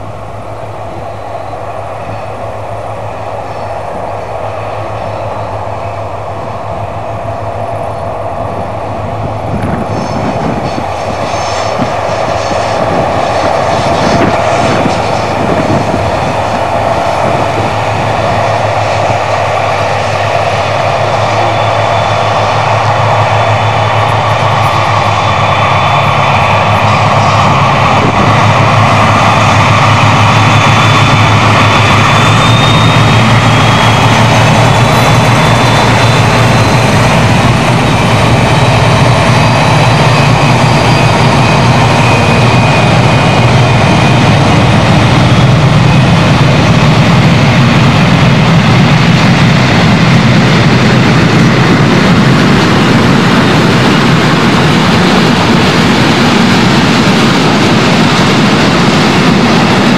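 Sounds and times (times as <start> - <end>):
diesel locomotive engines: 0.0 - 59.9
high whistling tones: 16.4 - 46.6.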